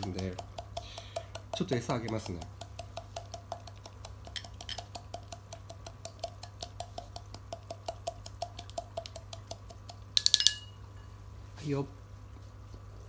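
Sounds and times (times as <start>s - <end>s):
rapid knocking in hard container: 0.0s - 10.6s.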